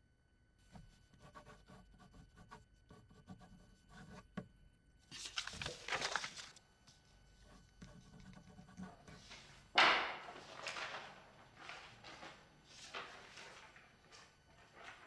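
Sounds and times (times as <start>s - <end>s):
pencil scratching on paper: 0.7s - 4.4s, 7.4s - 9.2s.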